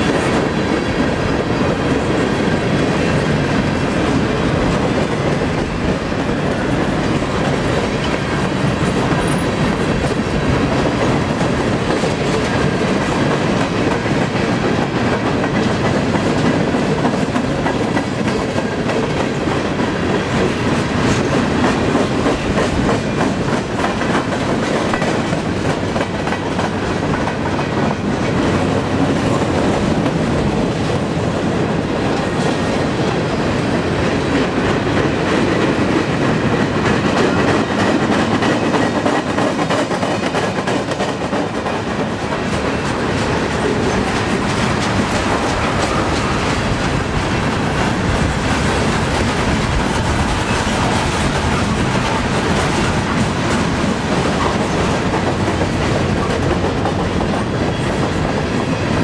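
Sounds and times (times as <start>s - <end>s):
wheels clicking over rail joints: 0.0s - 31.0s, 32.0s - 59.0s
freight train wheels rumbling: 0.0s - 59.0s.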